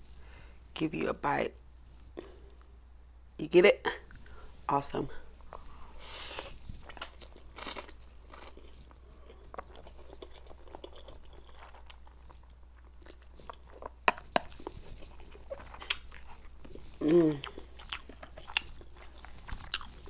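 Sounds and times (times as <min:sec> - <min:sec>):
chewing with mouth smacks: 0:06.4 - 0:20.0.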